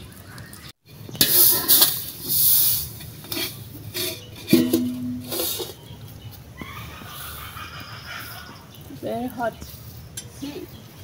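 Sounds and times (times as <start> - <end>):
metal clank ringing: 4.5 - 5.7.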